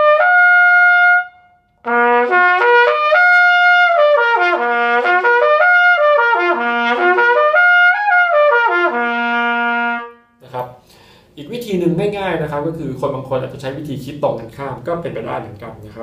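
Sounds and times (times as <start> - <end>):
trumpet playing lip slurs: 0.0 - 11.0.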